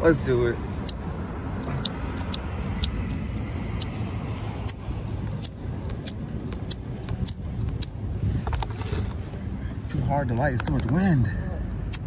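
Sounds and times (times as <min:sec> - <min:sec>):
wind rumbling on microphone: 0:00.6 - 0:12.0
lighter spark wheel clicking: 0:01.8 - 0:04.0, 0:04.6 - 0:04.8, 0:05.4 - 0:08.0.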